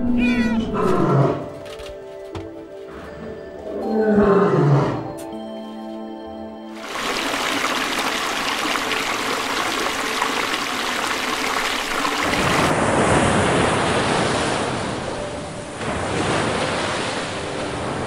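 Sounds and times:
shallow water splashing: 0:06.8 - 0:12.8
surf washing onto beach: 0:06.8 - 0:18.0.

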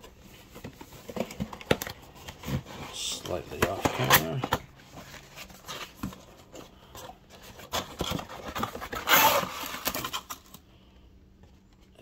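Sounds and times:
cardboard flap rasping open: 0:07.6 - 0:10.3.

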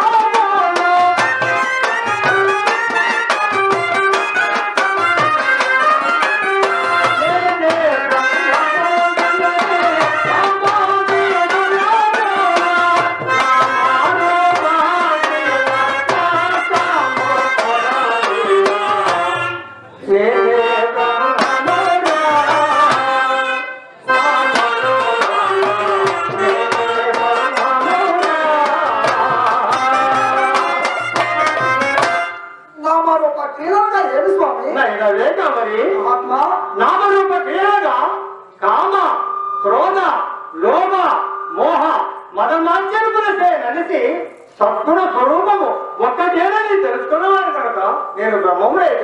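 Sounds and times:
tabla drumming: 0:00.0 - 0:20.0, 0:20.8 - 0:34.6, 0:35.4 - 0:44.1
wavering melody line: 0:38.8 - 0:42.6.

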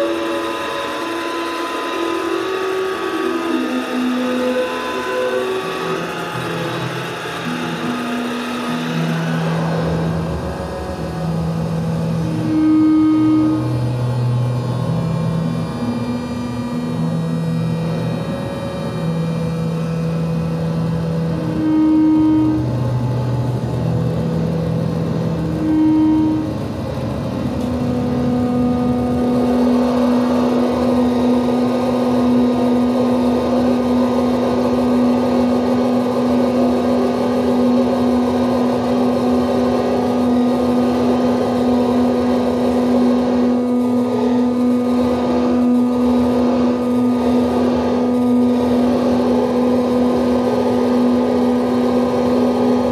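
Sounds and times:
electronic drone of pure tones: 0:00.0 - 0:52.9
low held tone: 0:00.0 - 0:52.9
dense wash of higher sound: 0:06.0 - 0:15.6.

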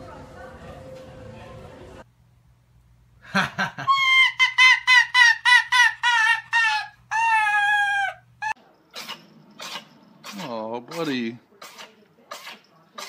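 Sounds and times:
fox cackling calls: 0:03.8 - 0:10.5.

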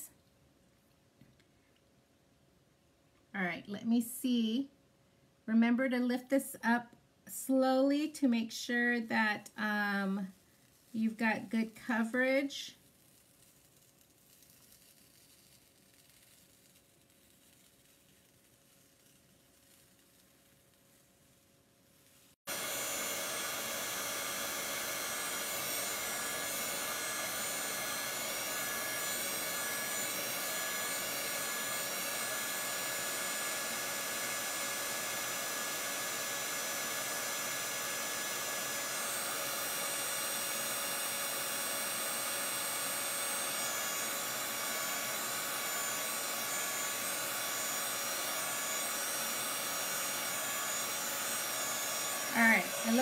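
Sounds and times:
blower rushing with tonal hum: 0:22.5 - 0:53.0.

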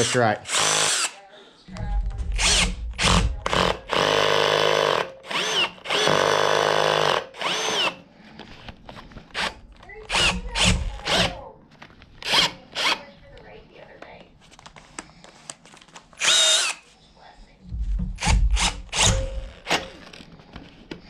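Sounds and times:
electric drill boring into metal: 0:00.0 - 0:01.2, 0:02.3 - 0:08.0, 0:09.3 - 0:11.4, 0:16.2 - 0:16.8, 0:18.2 - 0:20.0.

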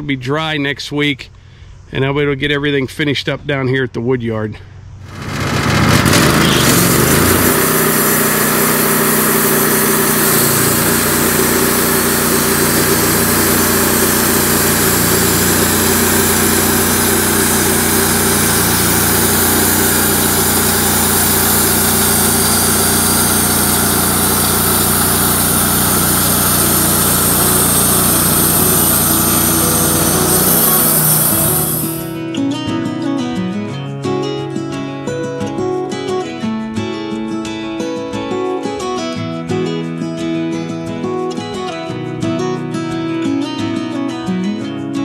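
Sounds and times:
band sawmill cutting wood: 0:05.0 - 0:32.2.

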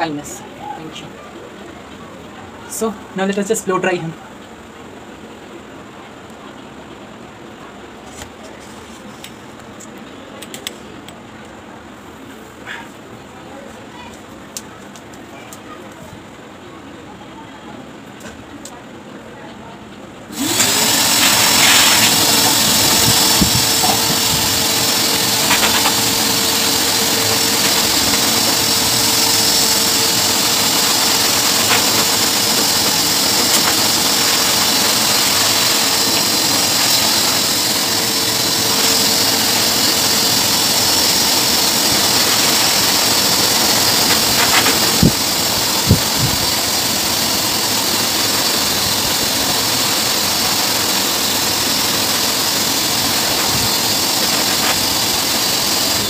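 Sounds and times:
dog blower motor whining: 0:20.3 - 0:56.0
rushing air: 0:20.4 - 0:56.0.

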